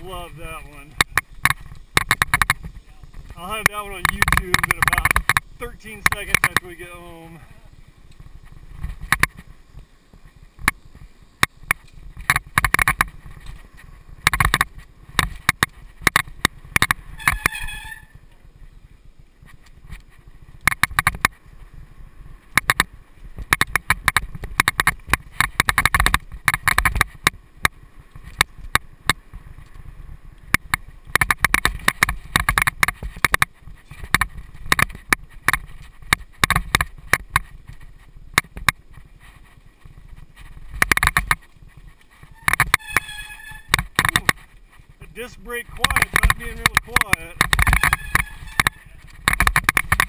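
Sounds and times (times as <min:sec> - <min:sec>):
tyres rumbling on dirt: 0:00.0 - 0:50.0
bike rattling clicks: 0:00.8 - 0:07.1, 0:08.0 - 0:18.4, 0:19.2 - 0:21.8, 0:22.4 - 0:50.0.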